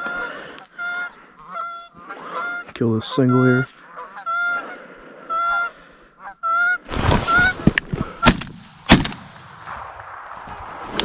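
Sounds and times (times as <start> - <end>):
goose honking: 0.0 - 7.7
shotgun shots: 8.2 - 11.0.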